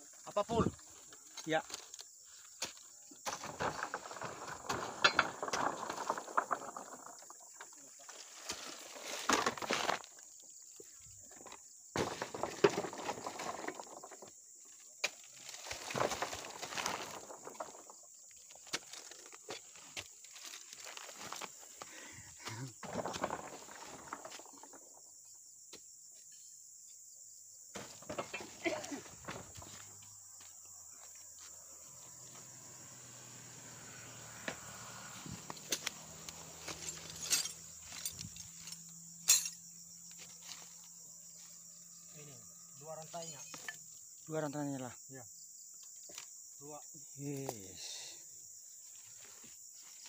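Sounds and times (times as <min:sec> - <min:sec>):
high insect whine: 0:00.0 - 0:50.0
fruit bunches rustling: 0:03.2 - 0:10.3, 0:11.1 - 0:21.9, 0:22.5 - 0:24.8, 0:27.8 - 0:30.0, 0:34.6 - 0:38.7
metal pole clinking and knocking: 0:05.0 - 0:05.3, 0:36.8 - 0:39.6.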